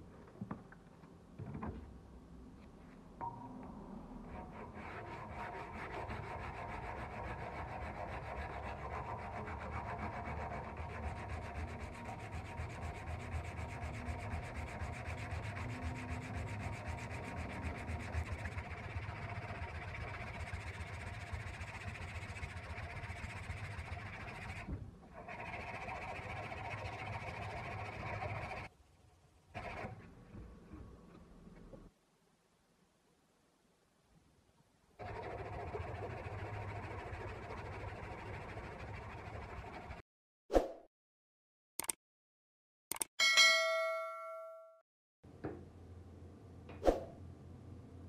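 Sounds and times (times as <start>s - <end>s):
sanding block scraping metal: 4.3s - 28.7s, 35.0s - 40.0s.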